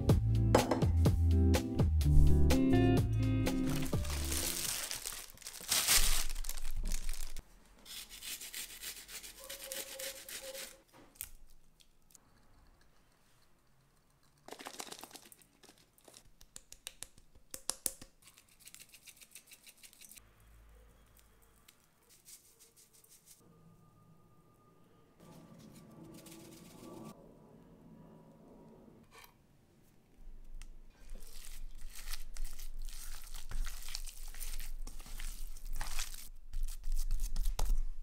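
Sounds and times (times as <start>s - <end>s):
rustling crinkling handling noise: 3.5s - 7.4s, 31.0s - 38.0s
clicks and taps: 16.2s - 18.2s.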